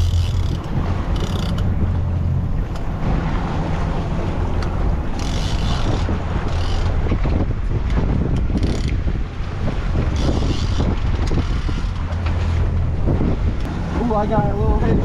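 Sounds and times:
boat engine humming: 0.0s - 15.0s
water around hull: 0.0s - 15.0s
wind buffeting microphone: 0.0s - 15.0s.

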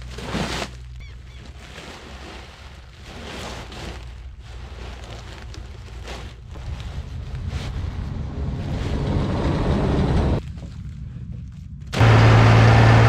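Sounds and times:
bag crackling and rustling: 0.0s - 9.0s
tractor engine idling: 12.0s - 13.0s.

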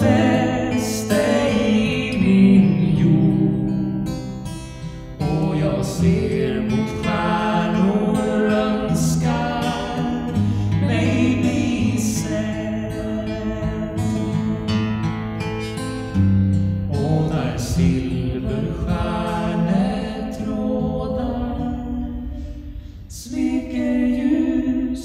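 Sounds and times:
woman singing: 0.0s - 4.1s, 10.8s - 14.8s, 23.2s - 25.0s
strummed acoustic guitar: 0.0s - 25.0s.

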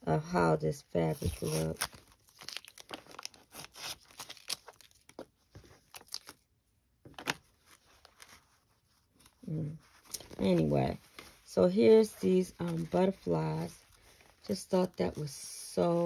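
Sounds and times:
paper and fabric rustling: 7.1s - 16.0s.

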